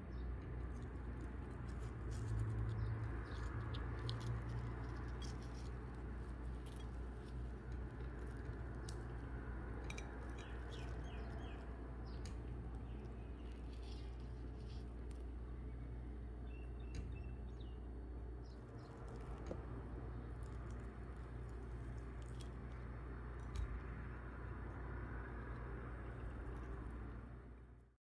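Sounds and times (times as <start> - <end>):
small chirps: 0.0 - 27.0
steady low hum: 0.0 - 28.0.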